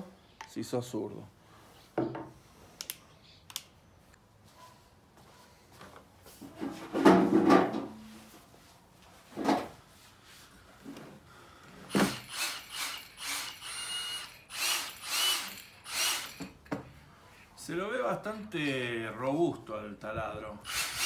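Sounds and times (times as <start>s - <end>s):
cordless drill whining: 11.9s - 16.6s, 20.6s - 21.0s.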